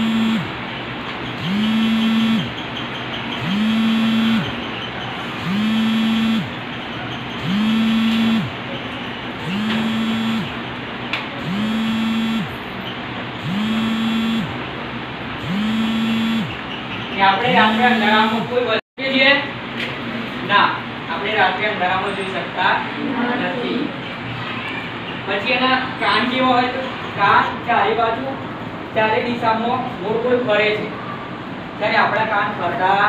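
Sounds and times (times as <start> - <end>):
mechanical hum winding up and down: 0.0 - 18.8.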